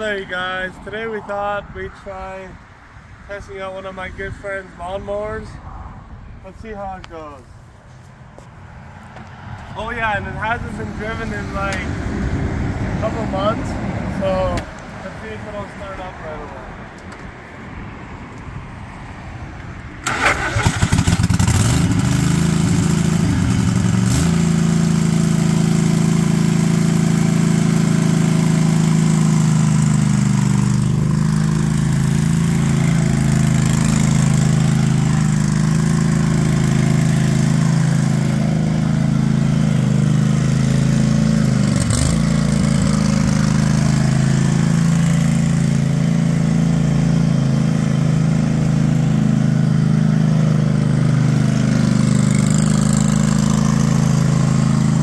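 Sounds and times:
engine starter cranking: 20.0s - 21.6s
lawn tractor engine running: 20.0s - 55.0s.

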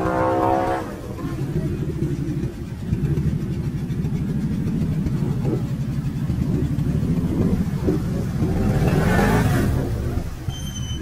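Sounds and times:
atv engine under throttle: 0.0s - 11.0s.

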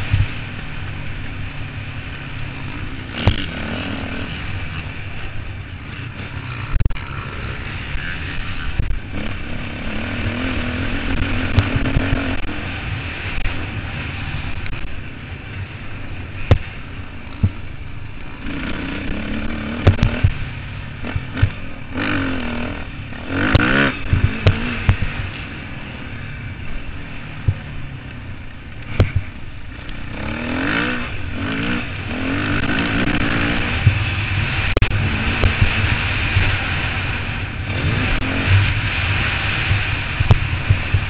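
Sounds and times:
motocross bike engine revving: 0.0s - 41.0s.

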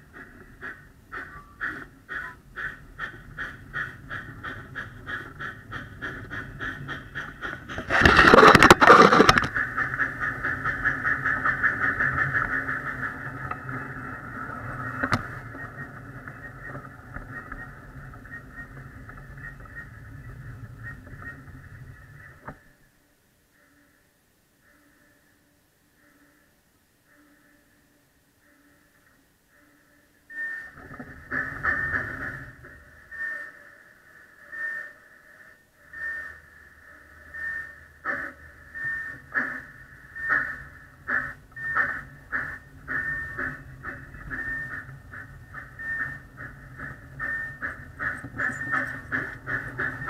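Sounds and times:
miniature train clicking on track: 0.0s - 21.8s, 40.2s - 50.0s
train running: 0.0s - 24.0s, 24.6s - 50.0s.

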